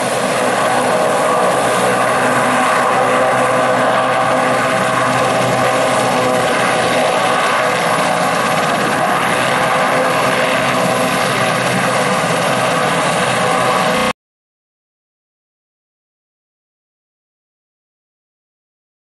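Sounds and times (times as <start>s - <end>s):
helicopter engines and rotor: 0.0s - 14.2s.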